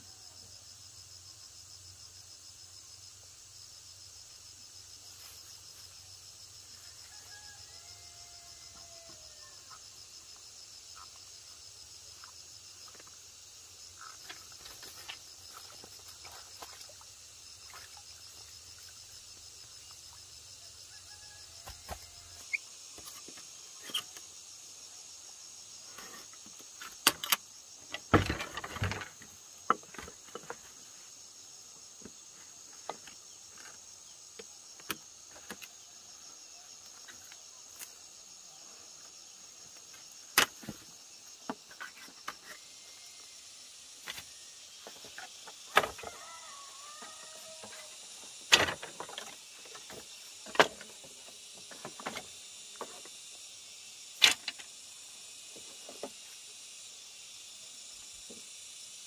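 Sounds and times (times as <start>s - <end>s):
insects chirping: 0.0s - 59.0s
knocking and rustling: 27.9s - 30.7s.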